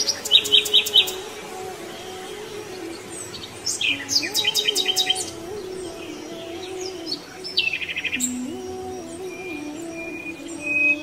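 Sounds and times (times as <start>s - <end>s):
birds chirping and whistling: 0.0s - 11.0s
soft melody of held notes: 0.0s - 11.0s.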